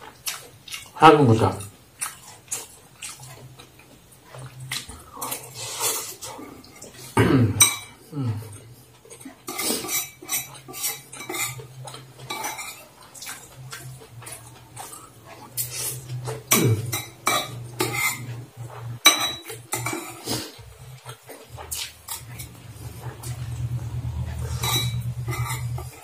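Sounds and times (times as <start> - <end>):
cutlery clinking against bowl: 4.7 - 8.0, 9.0 - 23.5, 24.2 - 26.0
person humming low: 7.2 - 8.6, 16.5 - 16.9.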